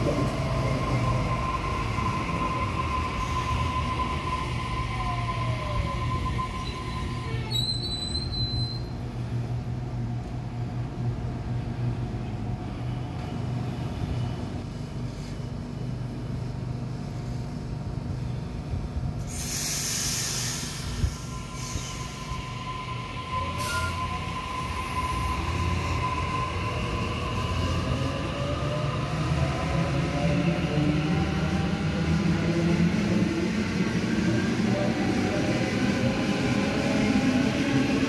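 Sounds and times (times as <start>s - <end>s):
stopped train humming: 0.0s - 7.7s.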